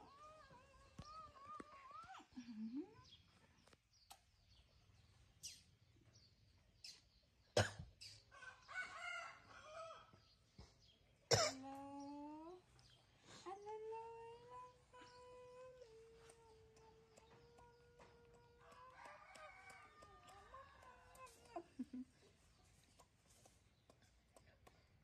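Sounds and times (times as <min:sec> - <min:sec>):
baby monkey cooing and squeaking: 0:00.0 - 0:03.2.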